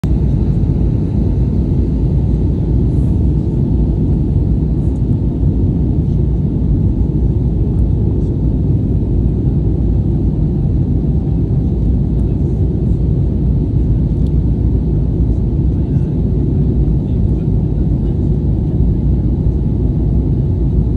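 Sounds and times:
airplane cabin rumble in flight: 0:00.0 - 0:20.9.

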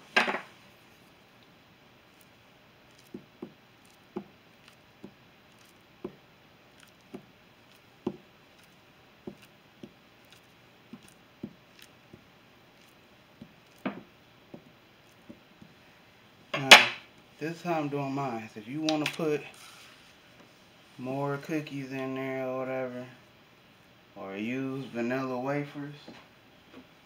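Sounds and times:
knife slicing banana: 0:02.9 - 0:06.2, 0:06.8 - 0:12.2.

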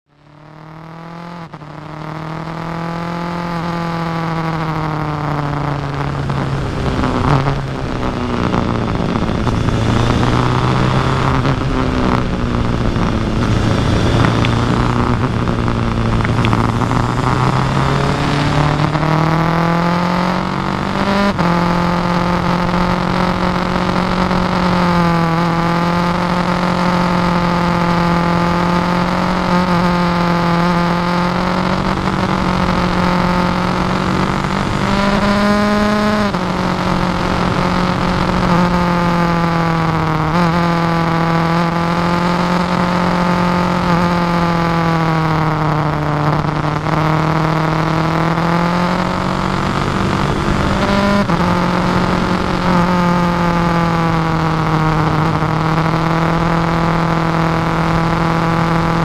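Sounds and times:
motorcycle engine running: 0:00.1 - 0:59.0
wind rush: 0:06.2 - 0:20.9.

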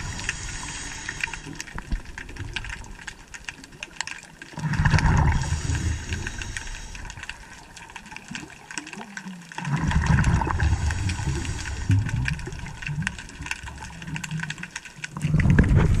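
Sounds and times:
scuba regulator bubbles rumbling: 0:00.0 - 0:16.0
faint clicks: 0:10.2 - 0:15.7.

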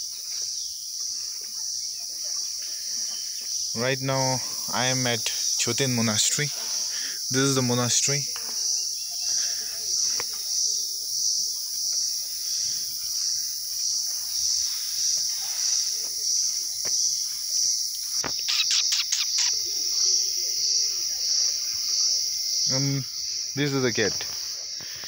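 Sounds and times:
pulsing high-pitched insect chorus: 0:00.0 - 0:25.0
sharp clicks: 0:18.2 - 0:19.6.

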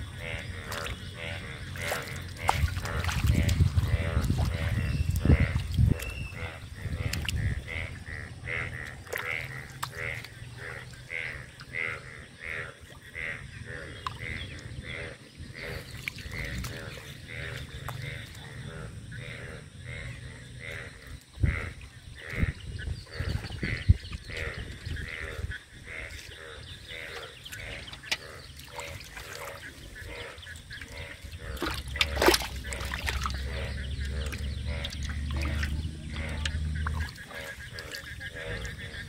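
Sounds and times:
wet handling in water: 0:01.6 - 0:06.4, 0:27.2 - 0:38.9
sharp splashes or knocks: 0:01.8 - 0:05.7, 0:31.5 - 0:33.5.

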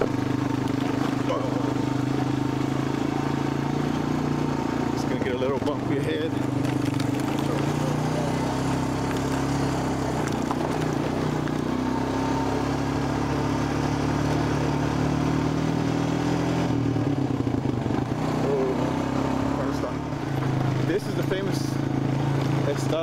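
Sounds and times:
atv engine running: 0:00.0 - 0:23.0.

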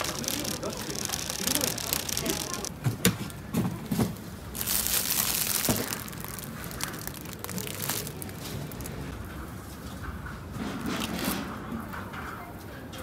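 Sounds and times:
plastic bag crinkling: 0:00.0 - 0:02.7, 0:04.4 - 0:09.3.

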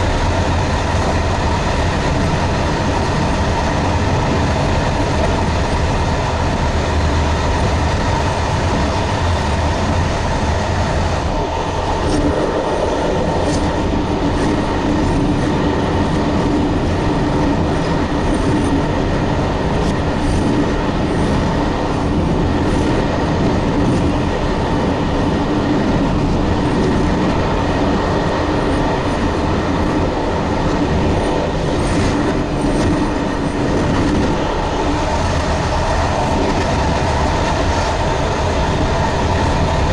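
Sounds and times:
steady hum on bridge: 0:00.0 - 0:39.9
train wheels rumbling on rail: 0:00.0 - 0:39.9.

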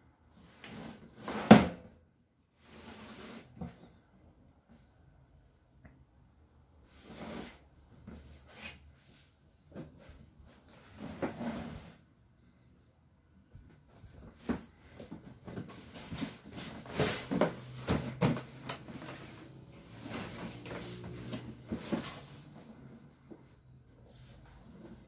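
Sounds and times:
cardboard box knocking and scraping: 0:14.1 - 0:22.5.

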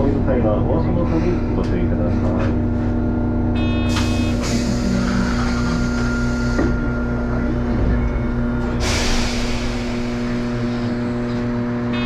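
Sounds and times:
streetcar electrical hum: 0:00.0 - 0:12.0
low throb: 0:02.8 - 0:12.0
air release hiss: 0:08.8 - 0:11.0.

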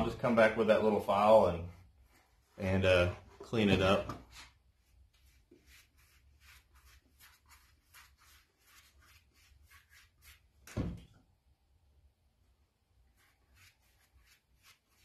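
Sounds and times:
paintbrush brushing scratch: 0:00.7 - 0:03.1, 0:04.3 - 0:10.7, 0:13.0 - 0:15.0.

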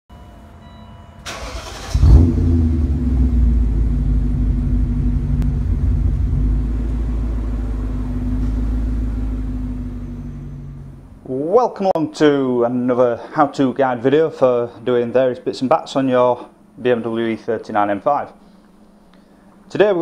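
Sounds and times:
car engine starter cranking: 0:01.2 - 0:03.0
car engine revving and idling: 0:01.4 - 0:11.2.

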